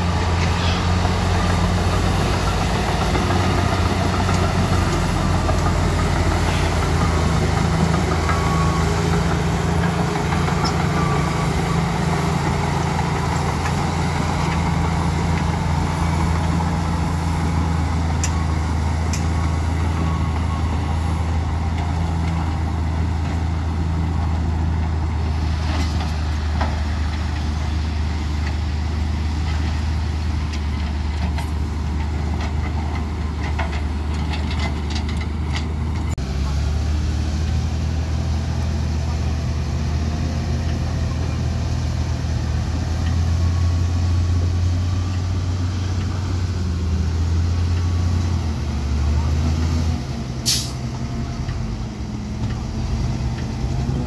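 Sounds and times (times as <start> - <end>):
higher engine tone: 0.0 - 29.6
bulldozer diesel engine humming: 0.0 - 54.0.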